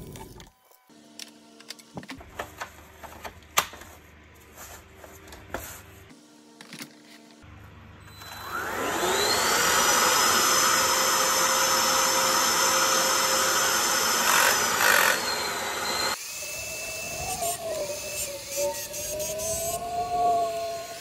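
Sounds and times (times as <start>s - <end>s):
vacuum cleaner motor whine: 8.0s - 21.0s.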